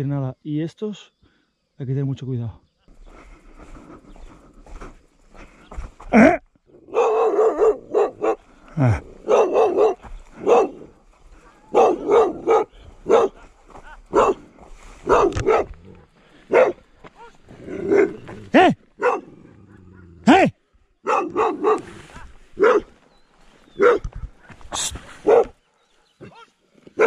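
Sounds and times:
dog barking: 6.8s - 13.5s, 14.1s - 20.1s, 21.0s - 23.0s, 23.7s - 24.2s, 25.2s - 25.6s.

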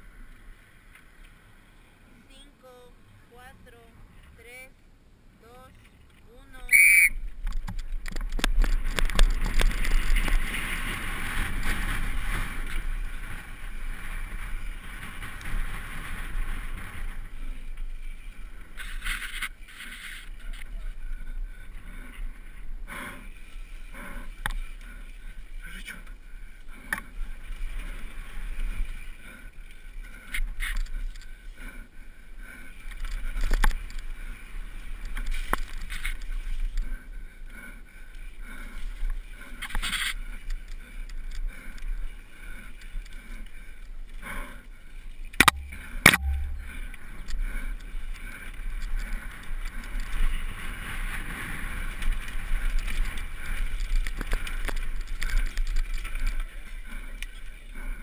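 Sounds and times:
mountain bike rattling: 6.8s - 58.0s
tyre and wind noise: 7.0s - 25.7s, 26.7s - 37.5s, 45.1s - 58.0s.

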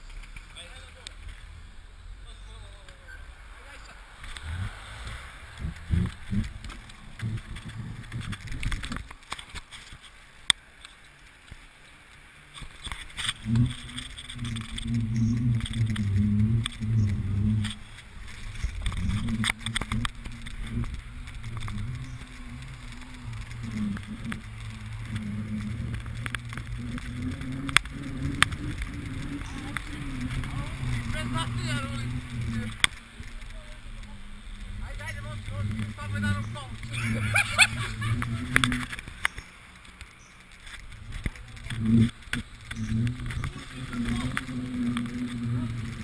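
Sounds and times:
bike tyre road noise: 0.0s - 46.0s
low wavering hum: 12.2s - 46.0s.

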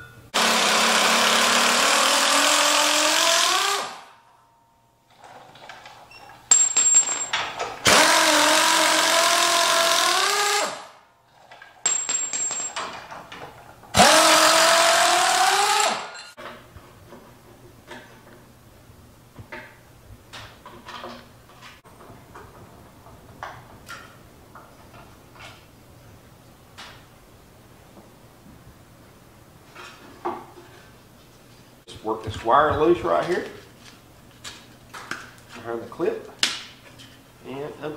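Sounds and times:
pneumatic impact wrench: 0.4s - 4.1s, 7.8s - 11.0s, 13.9s - 16.3s.

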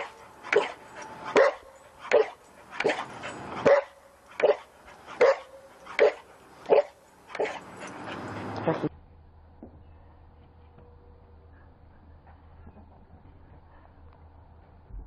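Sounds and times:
dog barking: 0.0s - 7.7s.

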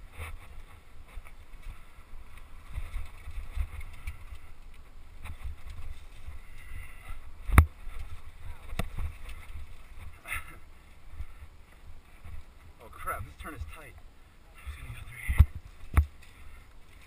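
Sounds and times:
bike rattling over rocks: 0.0s - 11.4s, 14.7s - 17.0s
wind rumble on microphone: 0.0s - 13.9s, 14.6s - 17.0s.

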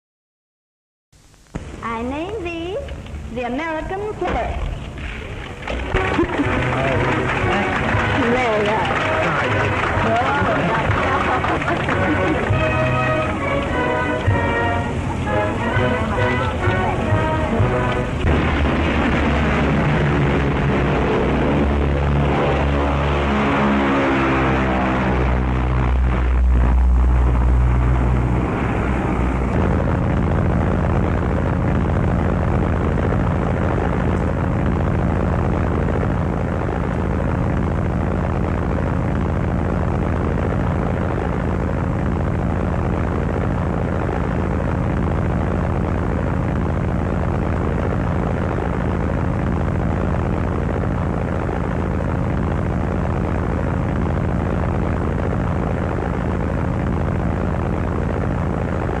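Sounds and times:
propeller aircraft engines droning: 2.3s - 36.0s.

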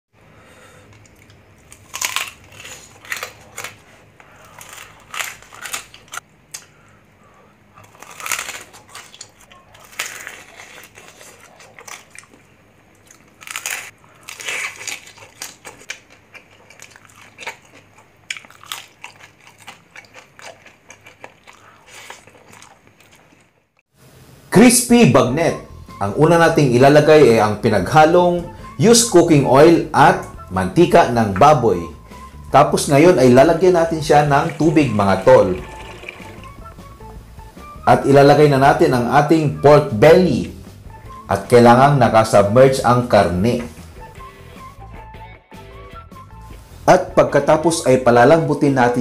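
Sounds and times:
crunching and chewing food: 0.9s - 23.8s.

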